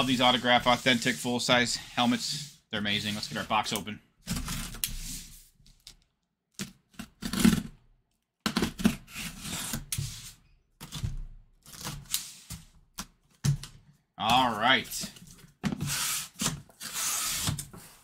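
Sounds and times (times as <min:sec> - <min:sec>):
cardboard box scraping on table: 0:04.3 - 0:05.4.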